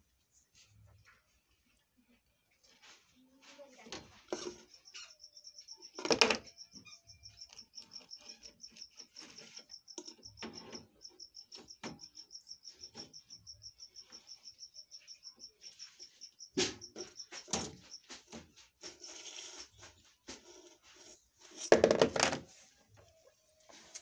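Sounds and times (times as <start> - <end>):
cricket chirping: 4.4 - 18.2
phone knocking on hard case: 21.7 - 22.4.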